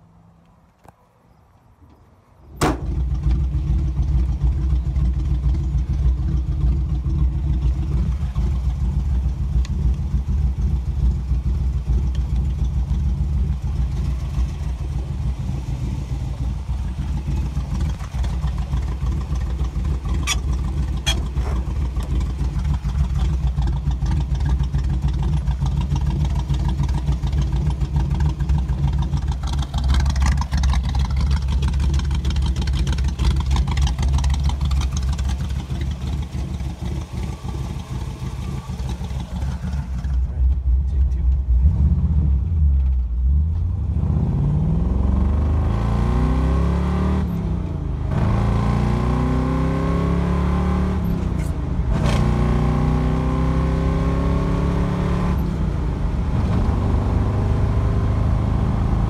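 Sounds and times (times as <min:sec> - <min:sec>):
car engine idling: 0:02.5 - 0:44.0.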